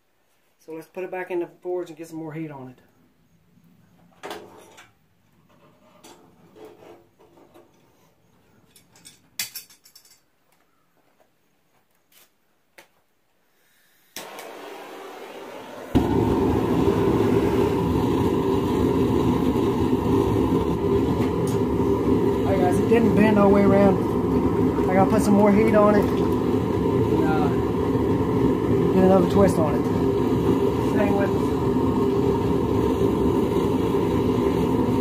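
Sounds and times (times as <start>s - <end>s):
forge rushing noise: 14.2s - 35.0s.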